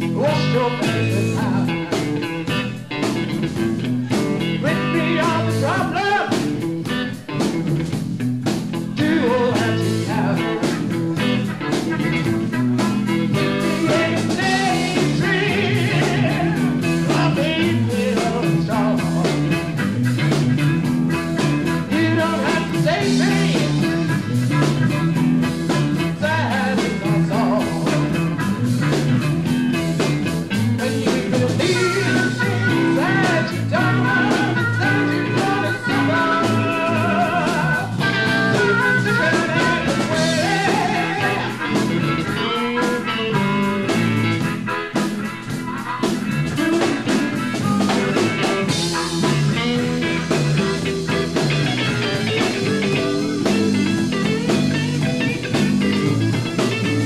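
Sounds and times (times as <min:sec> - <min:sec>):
blues band playing live: 0:00.0 - 0:57.0.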